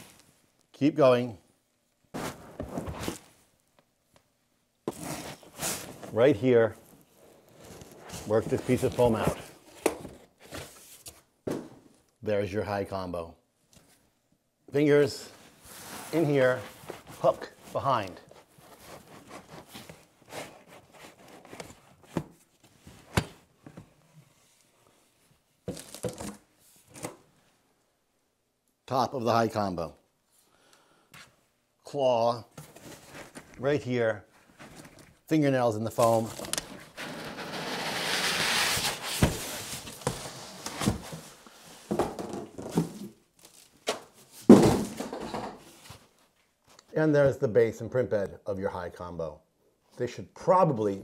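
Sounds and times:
packing foam rustling and scraping: 2.2 - 3.4, 7.2 - 9.8, 15.5 - 22.1, 35.9 - 41.9
foam scraping against box: 37.0 - 40.6.

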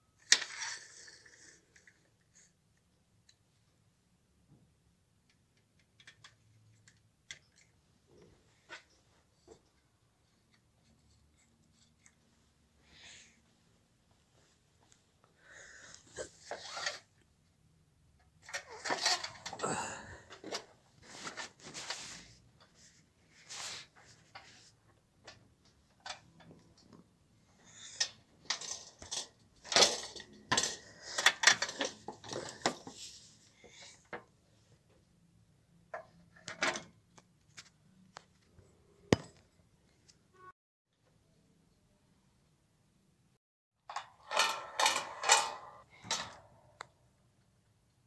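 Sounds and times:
clicks and knocks of handled parts: 0.2 - 3.4, 5.2 - 9.8, 25.2 - 27.0, 27.7 - 33.1, 43.9 - 47.0.

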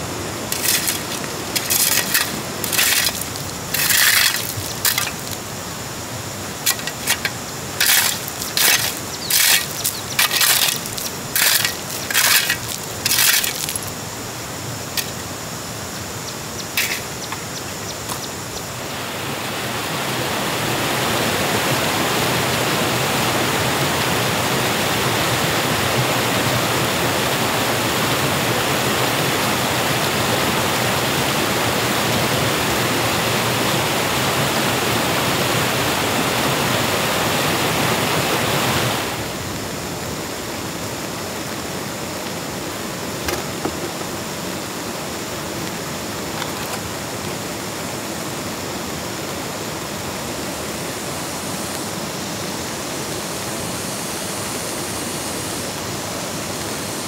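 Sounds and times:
rushing water: 0.0 - 57.0
brisk scraping strokes: 0.5 - 5.4, 6.7 - 13.9, 16.8 - 17.4.

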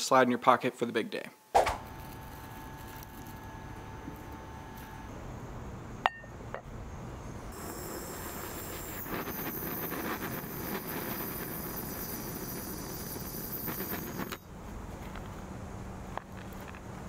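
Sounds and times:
torch flame hissing: 6.8 - 14.5.

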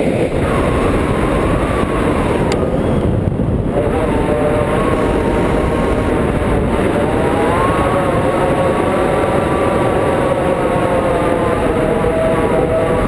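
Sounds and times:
wind rushing past microphone: 0.0 - 13.0
steady whistling tone: 0.3 - 3.2.

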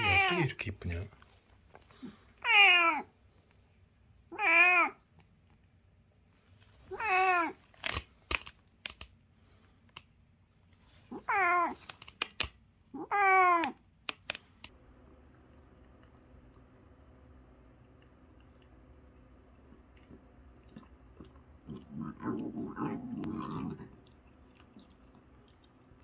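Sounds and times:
cat meowing: 0.0 - 0.4, 2.4 - 3.1, 4.3 - 5.0, 6.9 - 7.6, 11.1 - 11.8, 13.0 - 13.8
sharp clicks: 7.8 - 9.1, 11.8 - 12.6, 13.6 - 14.7.

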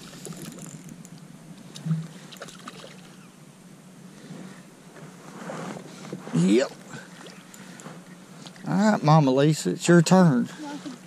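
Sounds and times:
low background hum: 0.0 - 11.0
light water splashes: 1.7 - 3.3.

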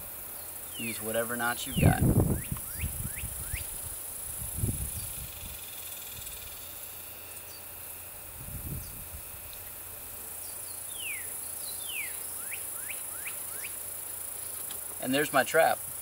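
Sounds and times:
bird calling: 0.0 - 3.7, 10.4 - 13.9
insects buzzing: 0.0 - 16.0.

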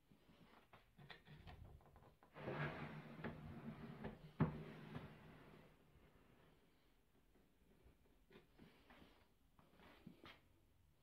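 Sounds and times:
drawer rumbling slide: 2.4 - 5.7.

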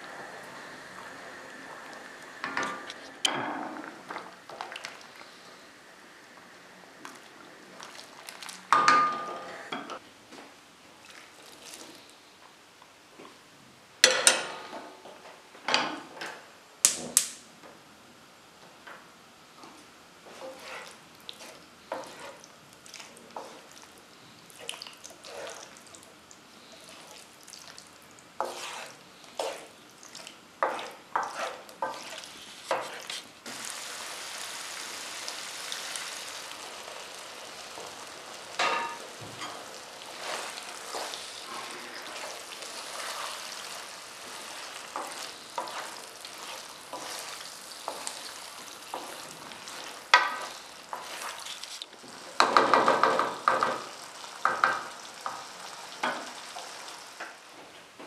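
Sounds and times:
water sizzling in hot pan: 0.0 - 9.2, 24.6 - 57.5
wooden spoon scraping a pan: 20.2 - 23.9, 24.6 - 25.8, 28.4 - 34.1, 35.8 - 56.9.

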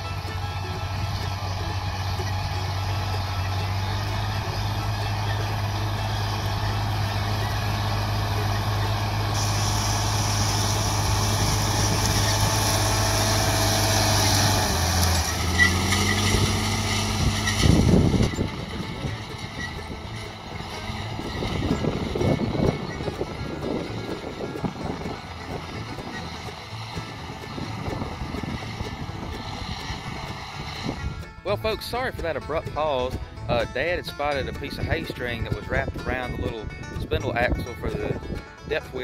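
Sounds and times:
tractor diesel engine passing: 0.0 - 39.0.

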